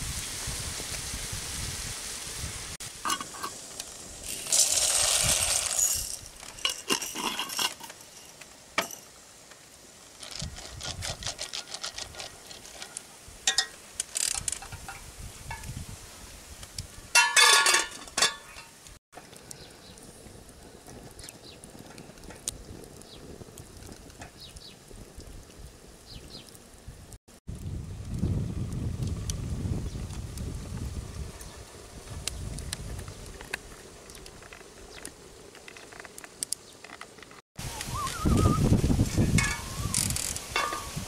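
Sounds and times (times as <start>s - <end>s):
pot lid clattering: 3.0s - 3.6s, 17.2s - 18.6s, 40.6s - 41.0s
utensil scraping metal pot: 3.0s - 8.9s, 39.2s - 41.0s.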